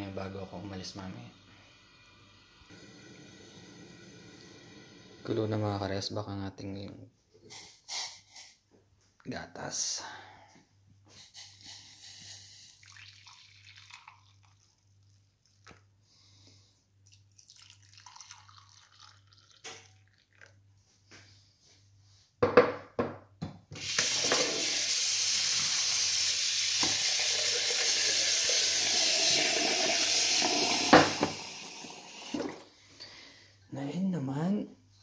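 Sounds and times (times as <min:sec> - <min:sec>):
kitchenware knocking: 0:22.4 - 0:23.2
tap running into saucepan: 0:23.8 - 0:24.8, 0:26.8 - 0:27.8, 0:30.3 - 0:31.5, 0:32.2 - 0:32.6.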